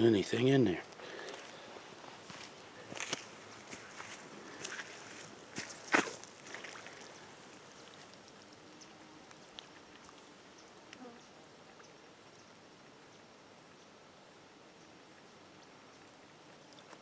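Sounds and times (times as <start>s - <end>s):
faint rustles and ticks: 0.0s - 14.0s, 14.7s - 17.0s
footstep on muddy ground: 0.9s - 7.2s.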